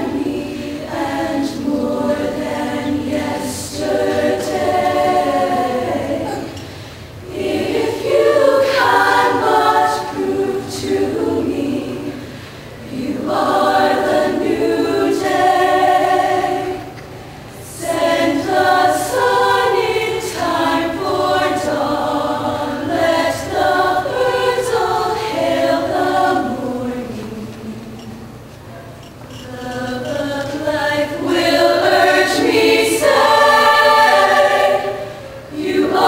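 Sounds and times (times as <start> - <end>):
women's choir singing in harmony: 0.0 - 28.6, 29.3 - 36.0
singers breathing: 6.6 - 7.2, 12.1 - 12.8.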